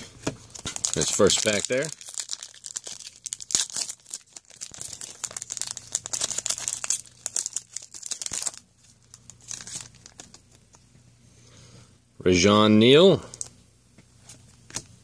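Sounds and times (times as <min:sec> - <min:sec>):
cards rustling: 0:00.5 - 0:10.8
plastic wrapper crinkling and tearing: 0:00.5 - 0:10.8.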